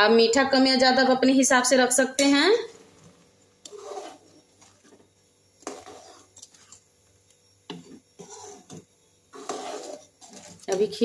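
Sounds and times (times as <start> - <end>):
ladle stirring thick liquid: 2.9 - 6.9, 7.6 - 11.0
ladle scraping and clinking pan: 9.4 - 11.0.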